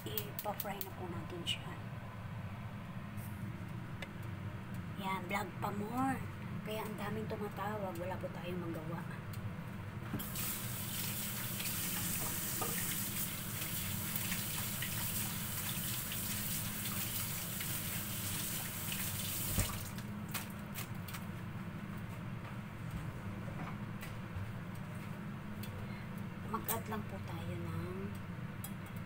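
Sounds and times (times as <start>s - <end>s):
water running from tap: 10.2s - 20.1s.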